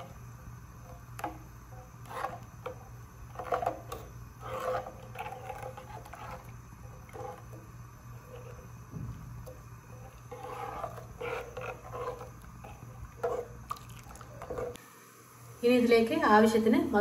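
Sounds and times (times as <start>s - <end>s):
steady low hum: 0.0s - 17.0s
metal ladle scraping a saucepan: 3.3s - 7.6s, 9.9s - 13.6s.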